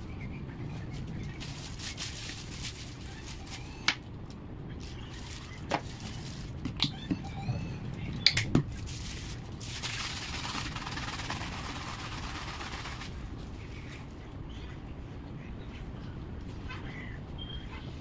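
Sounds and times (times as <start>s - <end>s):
plastic bag crinkling: 1.4s - 3.8s.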